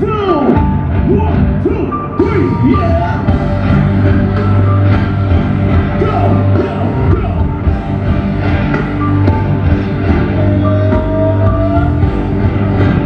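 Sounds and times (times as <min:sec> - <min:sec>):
live rock band playing: 0:00.0 - 0:13.0
person singing: 0:01.8 - 0:03.6, 0:05.9 - 0:07.7, 0:10.1 - 0:12.8.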